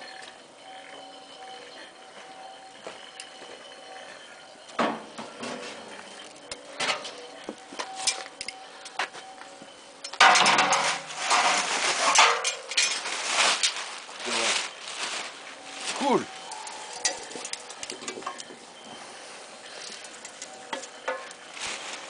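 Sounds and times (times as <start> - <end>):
metal tongs clinking: 16.4 - 18.5, 19.8 - 21.4.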